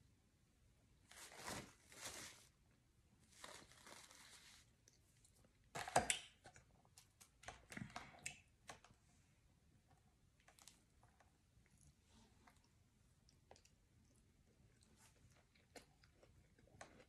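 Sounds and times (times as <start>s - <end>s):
crinkling and tearing: 1.1s - 2.5s, 3.3s - 4.7s.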